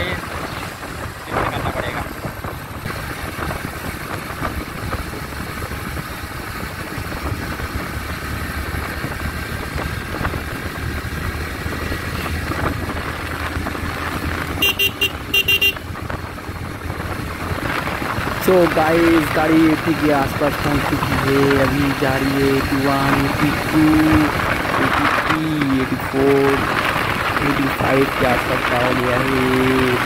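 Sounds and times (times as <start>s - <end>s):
road noise: 0.0s - 30.0s
horn beeps: 14.6s - 15.8s.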